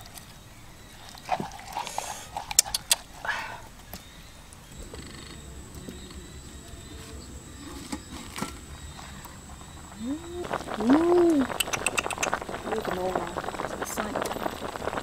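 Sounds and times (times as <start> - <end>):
quiet cooking sounds: 0.0 - 15.0.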